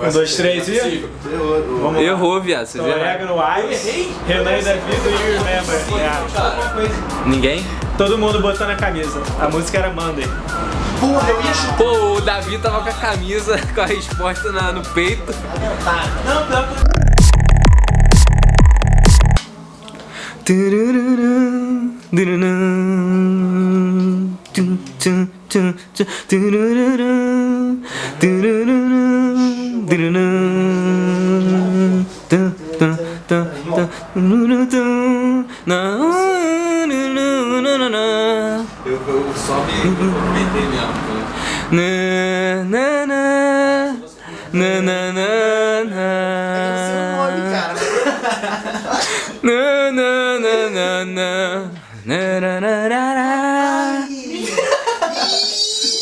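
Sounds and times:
man singing wordless melody: 20.4 - 38.8, 39.8 - 40.6, 41.6 - 47.8, 49.4 - 54.3.

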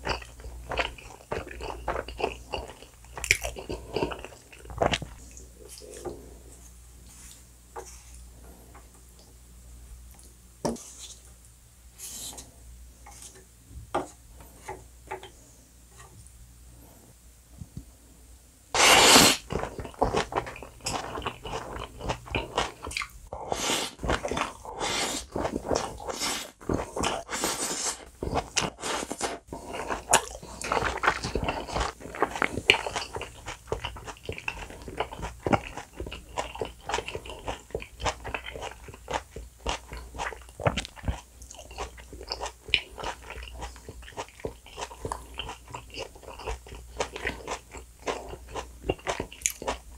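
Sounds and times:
person chewing: 0.0 - 6.5, 18.8 - 49.9.

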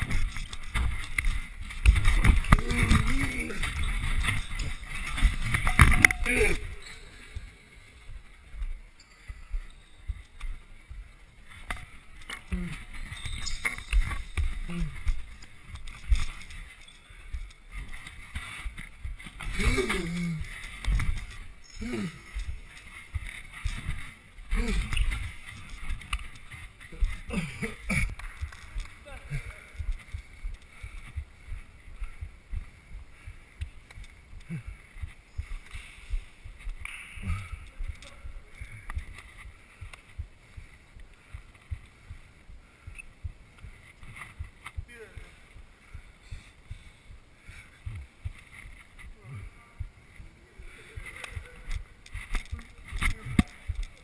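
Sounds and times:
camera thumps and rustle: 0.0 - 6.3, 10.1 - 21.6, 50.9 - 54.0.

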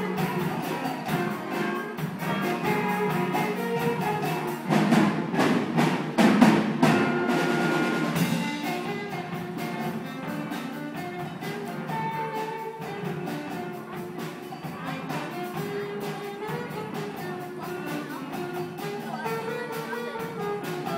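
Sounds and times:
heavy drum hits: 0.0 - 9.5
school band playing: 0.0 - 20.9.

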